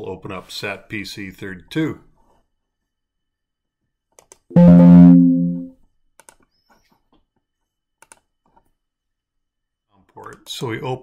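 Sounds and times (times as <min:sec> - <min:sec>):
faint mouse clicks: 0:04.1 - 0:04.5, 0:06.2 - 0:07.4, 0:08.0 - 0:08.7
computer alert chime: 0:04.5 - 0:05.7.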